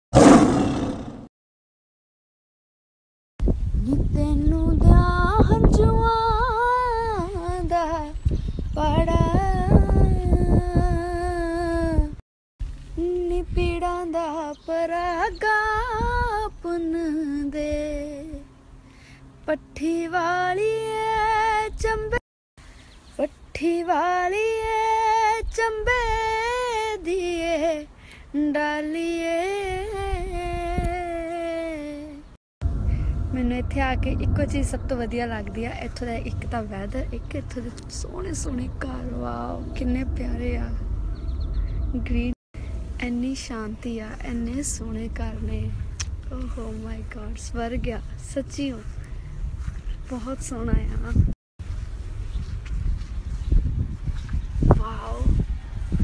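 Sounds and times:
woman singing: 0:03.8 - 0:08.2, 0:08.8 - 0:12.2, 0:13.0 - 0:18.4, 0:19.5 - 0:22.2, 0:23.2 - 0:32.3, 0:33.3 - 0:40.8, 0:43.0 - 0:49.0
low rumbling noise: 0:32.6 - 0:56.0.

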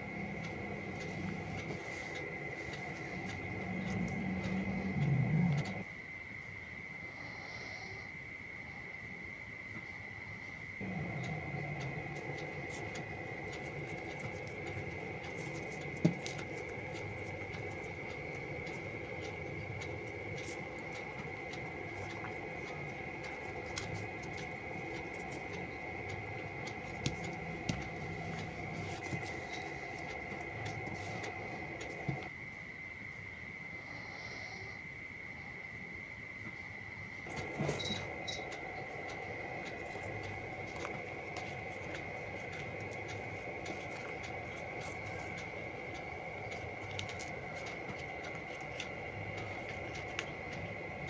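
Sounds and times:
high-pitched whine and hum: 0:37.2 - 0:51.0.

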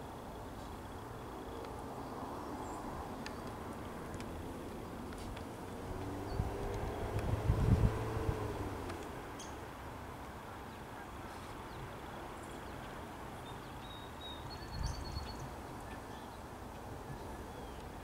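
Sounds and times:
low outdoor rumble: 0:00.2 - 0:10.6
faint bird chirps: 0:12.4 - 0:16.4.

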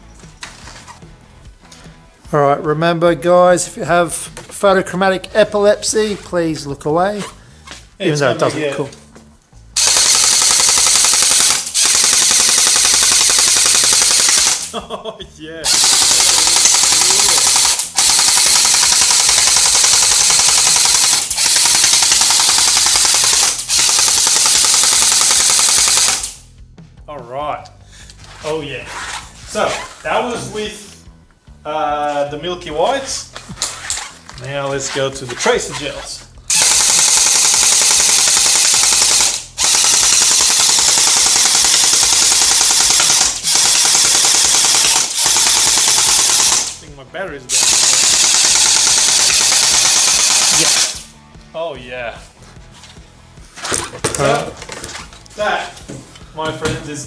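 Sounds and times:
gel blaster firing full auto: 0:09.8 - 0:14.7, 0:15.7 - 0:26.4, 0:36.5 - 0:46.8, 0:47.5 - 0:51.1.

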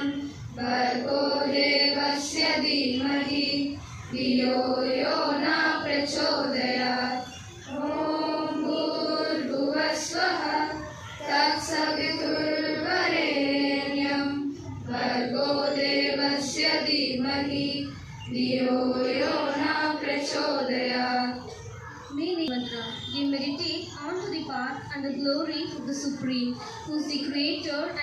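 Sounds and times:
girls singing in unison: 0:00.0 - 0:21.6.

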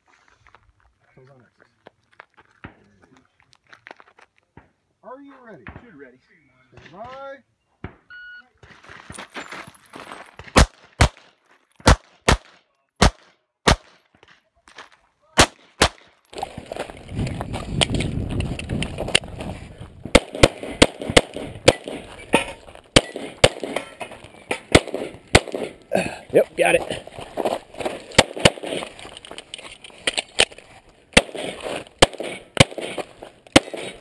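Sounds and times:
pistol shots: 0:10.4 - 0:14.0, 0:15.4 - 0:16.1, 0:20.0 - 0:25.8, 0:28.0 - 0:28.9, 0:31.1 - 0:34.0.

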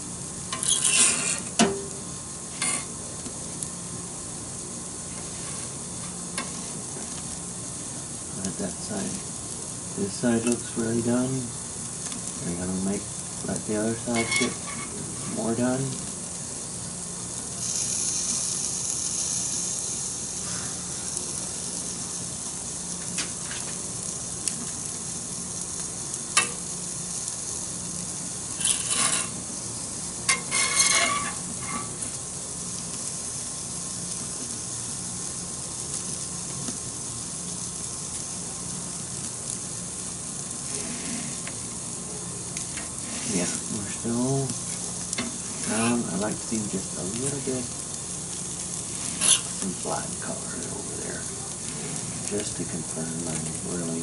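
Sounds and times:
gas burner flame hissing: 0:00.0 - 0:54.0
metal peel scraping and clattering: 0:00.5 - 0:01.8, 0:14.1 - 0:15.4, 0:28.6 - 0:29.4, 0:30.3 - 0:32.0, 0:48.9 - 0:49.6.

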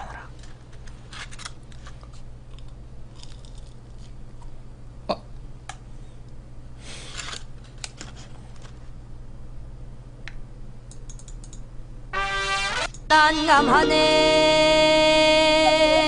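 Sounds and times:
low steady hum: 0:00.0 - 0:16.0
small clicks: 0:10.3 - 0:11.6
musical tone: 0:12.2 - 0:16.0.

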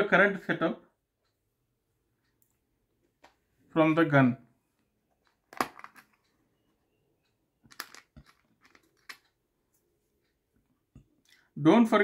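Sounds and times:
faint clicks and taps of rifle parts: 0:07.6 - 0:09.4.

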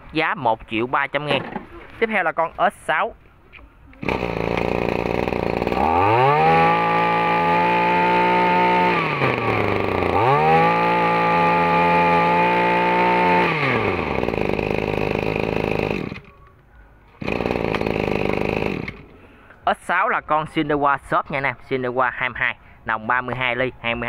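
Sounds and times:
grass trimmer engine revving: 0:04.0 - 0:16.4, 0:17.2 - 0:19.2.

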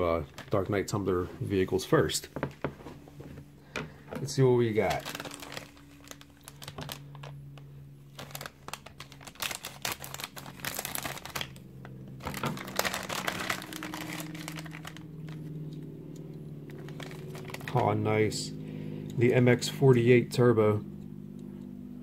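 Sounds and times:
plastic packet crinkling: 0:00.0 - 0:00.9, 0:04.2 - 0:15.5, 0:16.7 - 0:17.8
steady low hum: 0:00.0 - 0:22.0.

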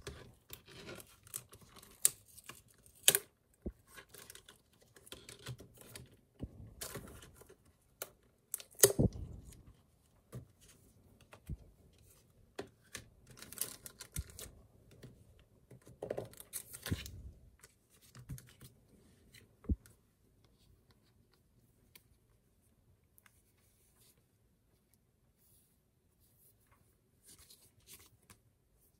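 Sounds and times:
plastic sleeves crinkling: 0:12.9 - 0:15.0.

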